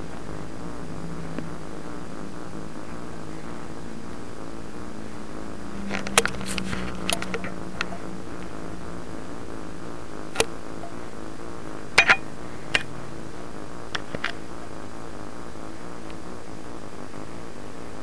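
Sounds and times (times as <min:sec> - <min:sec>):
grooming brush clicks and taps: 0:06.0 - 0:08.0.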